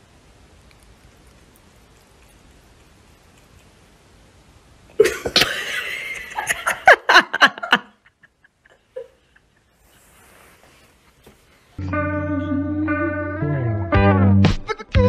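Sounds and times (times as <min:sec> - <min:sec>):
person laughing hard: 0:05.0 - 0:09.5.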